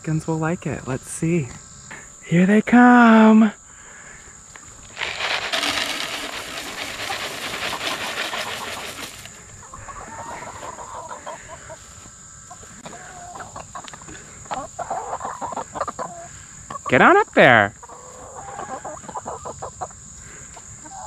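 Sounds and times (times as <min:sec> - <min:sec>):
hens clucking: 0:04.6 - 0:21.0
grain pouring onto wooden tray: 0:04.9 - 0:09.3.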